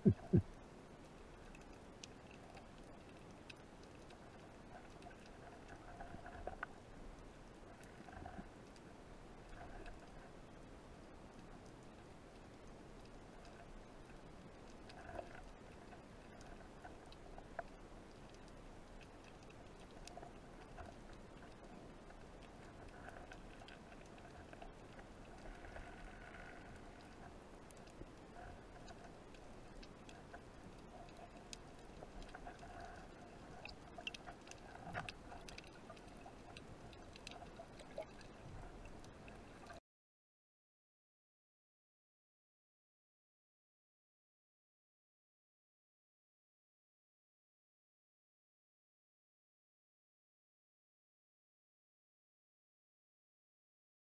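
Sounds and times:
underwater crackle of small clicks: 0:00.0 - 0:39.8
faint underwater hiss: 0:20.0 - 0:39.8.

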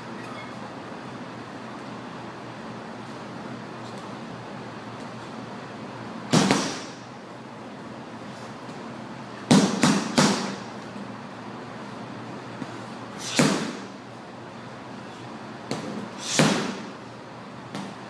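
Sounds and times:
punches hitting heavy bag: 0:06.3 - 0:07.0, 0:09.5 - 0:10.7, 0:13.2 - 0:13.9, 0:15.7 - 0:16.9.

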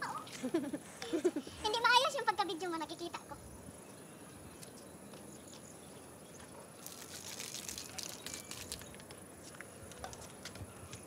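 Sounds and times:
faint outdoor background: 0:00.0 - 0:11.0
plastic and dry grass rustling: 0:06.8 - 0:11.0.

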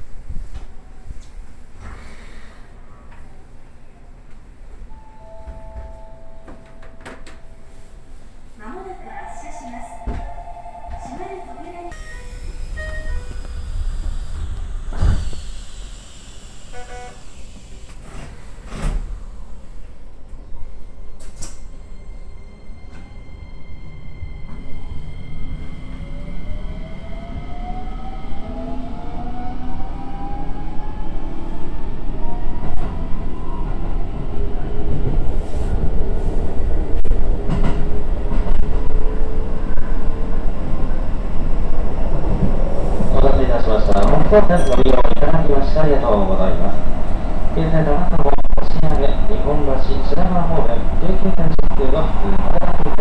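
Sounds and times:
low train rumble: 0:00.0 - 0:53.0
electronic chime: 0:09.9 - 0:13.9
train wheels rumbling on rail: 0:32.6 - 0:53.0.

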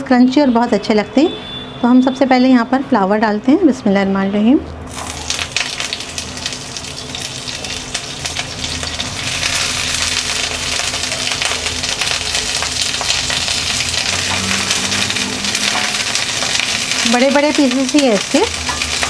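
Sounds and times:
cauliflower sizzling in hot oil: 0:04.9 - 0:19.0.

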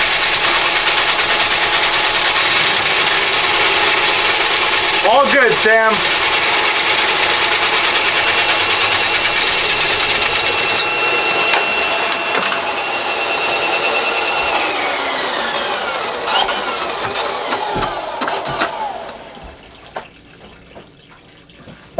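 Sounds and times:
drain snake motor whirring: 0:00.0 - 0:19.5.

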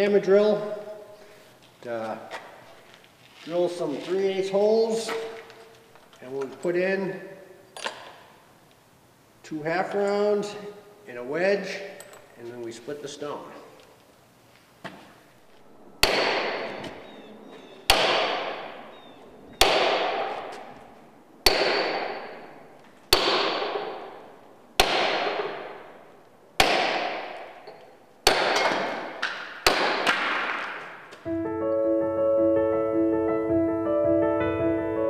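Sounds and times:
hammer striking steel wedge: 0:16.0 - 0:16.6, 0:17.9 - 0:18.7, 0:19.6 - 0:20.6, 0:21.4 - 0:22.5, 0:23.1 - 0:24.2, 0:24.8 - 0:25.8, 0:26.6 - 0:30.7
piano music: 0:31.3 - 0:35.0.

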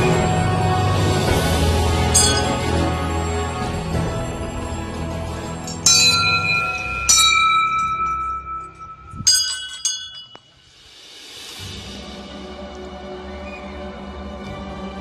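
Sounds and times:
background music: 0:00.0 - 0:10.0, 0:10.6 - 0:15.0
brass bells ringing: 0:00.0 - 0:10.7.

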